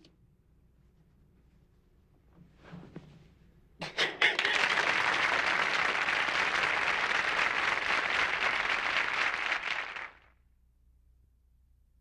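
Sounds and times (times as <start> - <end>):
audience applause: 4.2 - 10.3.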